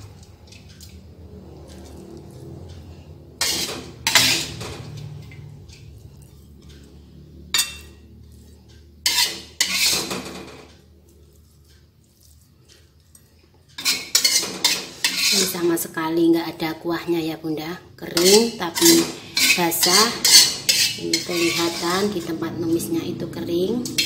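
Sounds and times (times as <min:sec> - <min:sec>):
metal spatula scraping a wok: 0:01.7 - 0:06.0, 0:07.4 - 0:10.7, 0:13.7 - 0:15.9, 0:18.1 - 0:23.0, 0:23.7 - 0:24.0.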